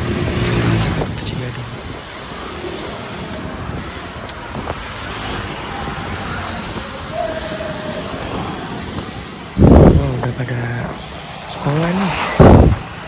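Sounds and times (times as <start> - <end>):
wind rushing over microphone: 0.0 - 2.4, 8.1 - 11.0, 11.6 - 13.0
bicycle tyre and road noise: 0.0 - 13.0.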